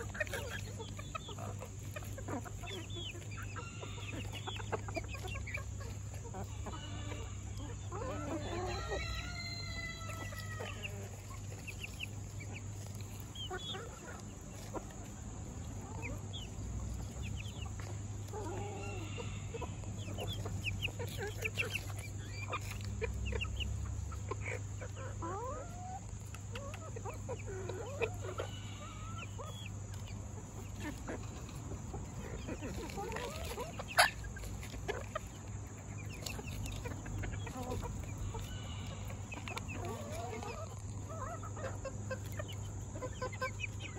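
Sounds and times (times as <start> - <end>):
chickens clucking: 0.0 - 43.9.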